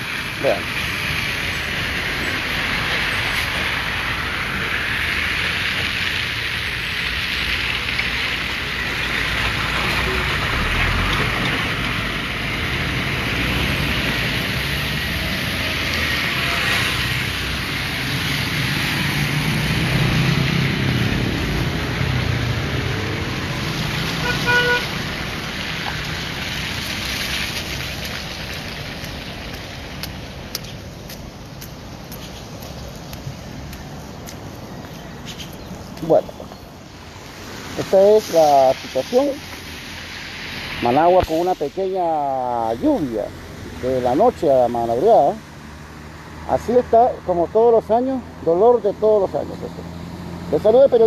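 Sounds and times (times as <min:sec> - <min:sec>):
passing car engines: 0:00.0 - 0:51.0
tyres hissing on wet asphalt: 0:00.0 - 0:51.0
heavy engine rumbling past: 0:08.0 - 0:31.4
car horn toot: 0:24.2 - 0:25.0.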